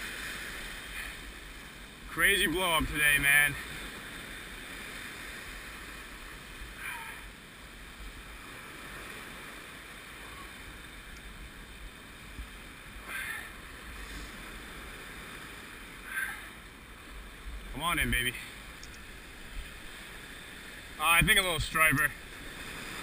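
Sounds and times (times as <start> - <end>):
surf washing over rocks: 0.0 - 23.0.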